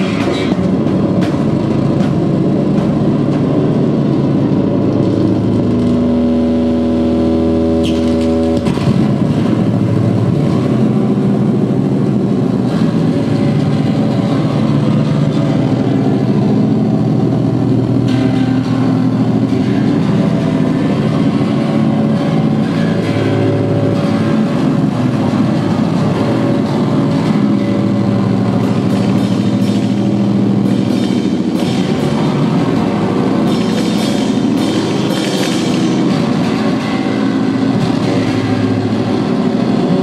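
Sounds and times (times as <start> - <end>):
distorted electric guitar drone: 0.0 - 40.0
held guitar chord: 0.0 - 40.0.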